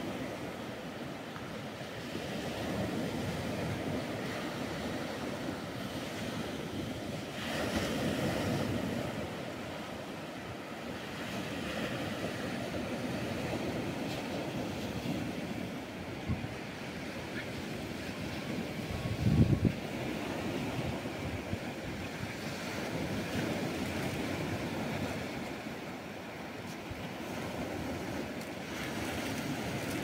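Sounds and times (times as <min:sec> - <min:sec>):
waves breaking on sandy beach: 0:00.0 - 0:30.0.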